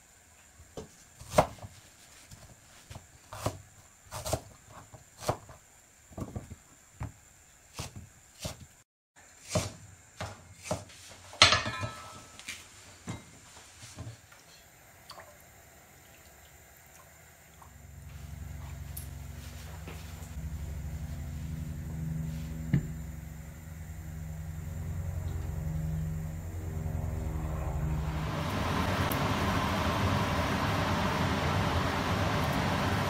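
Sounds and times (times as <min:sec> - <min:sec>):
water boiling in a pot: 0:13.0 - 0:23.6, 0:27.7 - 0:33.0.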